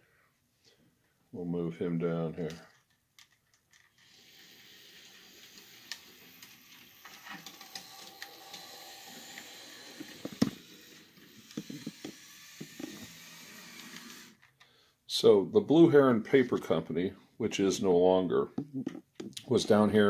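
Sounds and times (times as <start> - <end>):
model train motor whir: 3.9 - 14.4.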